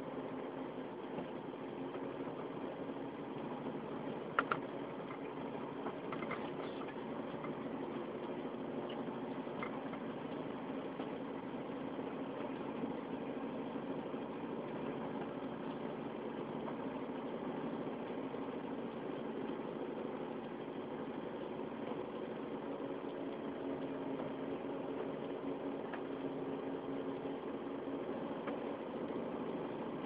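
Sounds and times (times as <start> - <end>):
vehicle engine droning: 0.0 - 30.0.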